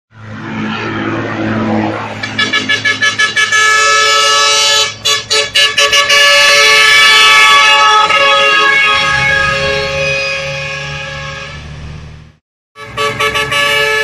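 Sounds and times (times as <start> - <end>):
multi-tone truck air horn: 2.2 - 11.7, 12.8 - 14.0.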